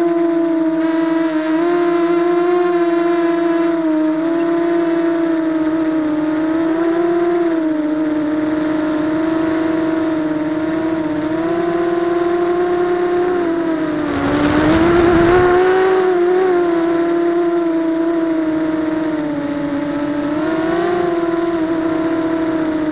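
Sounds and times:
quadcopter motors whining: 0:00.0 - 0:22.9
rush of air noise: 0:12.8 - 0:16.3.

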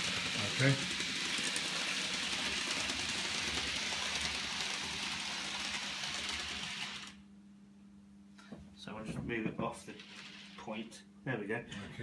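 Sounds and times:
model train motor whirring: 0:00.0 - 0:07.2, 0:09.9 - 0:10.6.

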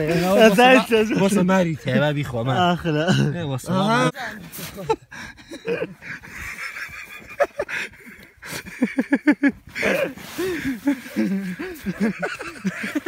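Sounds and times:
man laughing: 0:02.6 - 0:04.1, 0:04.7 - 0:13.0.

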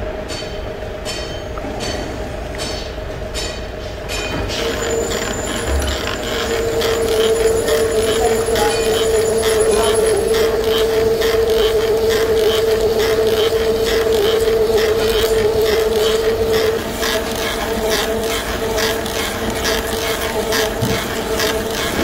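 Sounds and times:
lathe machine hum: 0:04.0 - 0:22.0
drill scraping ticks: 0:04.4 - 0:22.0.

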